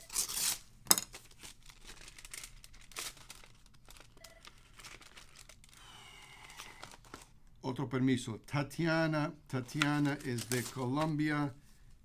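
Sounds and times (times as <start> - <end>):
paper rustling and crinkling: 0.1 - 7.3, 9.7 - 11.4.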